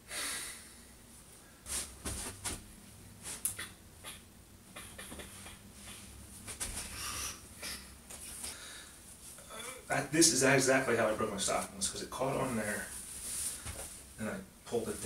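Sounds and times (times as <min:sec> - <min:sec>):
clothing rustling: 0:12.4 - 0:14.2.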